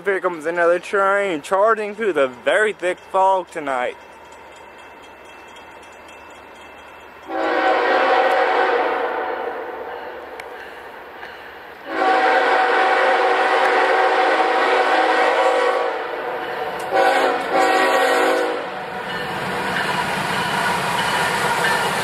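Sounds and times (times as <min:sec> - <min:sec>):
train rumbling: 0:00.0 - 0:22.0
locomotive horn blasts: 0:07.3 - 0:09.8, 0:11.9 - 0:16.2, 0:16.8 - 0:18.7.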